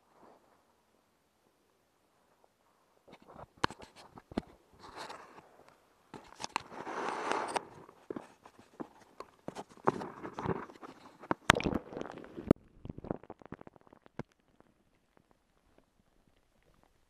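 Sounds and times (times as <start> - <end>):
underwater water noise: 6.6 - 17.0.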